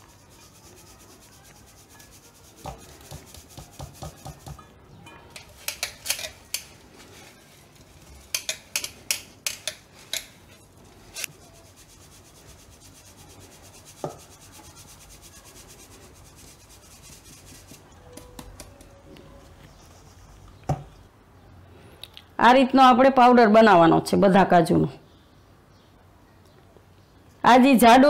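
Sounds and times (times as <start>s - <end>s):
powder rasping through mesh: 0.0s - 4.6s, 5.3s - 20.6s
metal sieve tapping: 8.2s - 10.4s.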